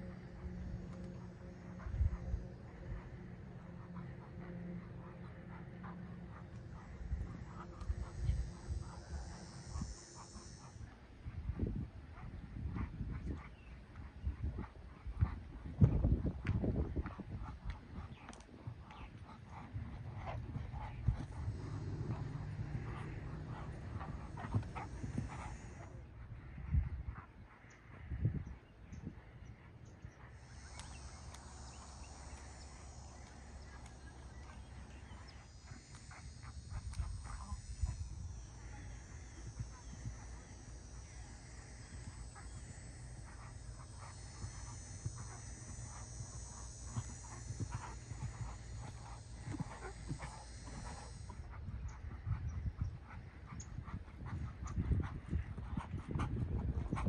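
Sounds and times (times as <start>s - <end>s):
background hiss: 0.0s - 13.7s, 18.0s - 26.6s, 29.1s - 57.0s
wind rumble on microphone: 0.0s - 57.0s
horse hooves thudding on sand: 12.1s - 26.0s, 29.1s - 57.0s.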